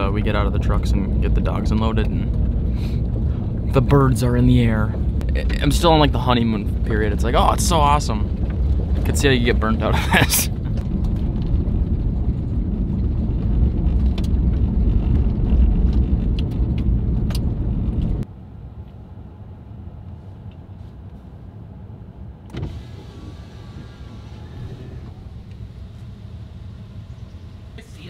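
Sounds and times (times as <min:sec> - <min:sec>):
tyres rumbling on gravel: 0:00.0 - 0:18.2
truck engine idling: 0:22.9 - 0:28.0.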